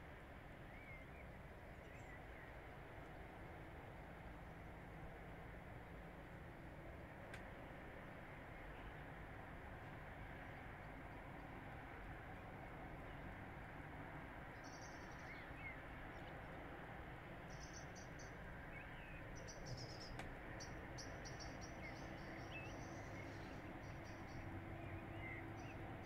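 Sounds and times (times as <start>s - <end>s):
small birds chirping: 17.4s - 26.0s.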